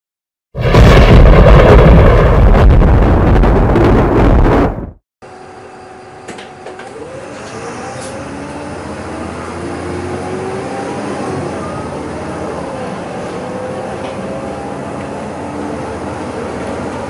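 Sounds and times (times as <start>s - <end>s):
rising whine: 0.6s - 17.0s
bus engine accelerating: 5.2s - 17.0s.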